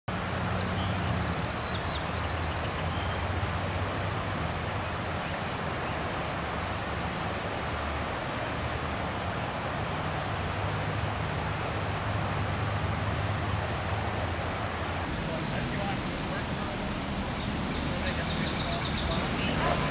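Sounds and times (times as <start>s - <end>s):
river rushing in flood: 0.1s - 19.9s
birds chirping: 0.5s - 6.1s, 15.1s - 19.9s.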